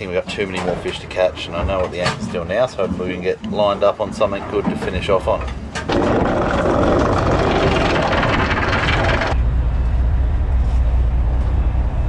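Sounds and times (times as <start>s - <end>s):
anchor chain rattling over roller: 4.2s - 9.4s
boat engine humming: 5.2s - 9.4s.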